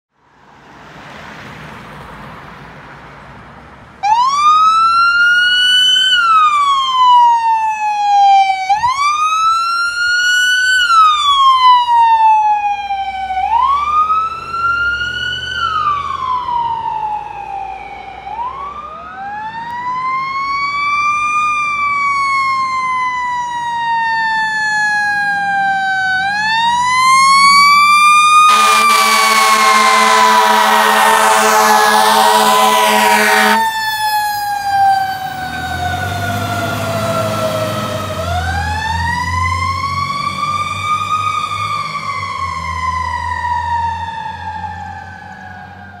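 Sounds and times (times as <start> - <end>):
electronic siren wailing: 21.8 - 45.8
air horn blaring: 28.4 - 34.2.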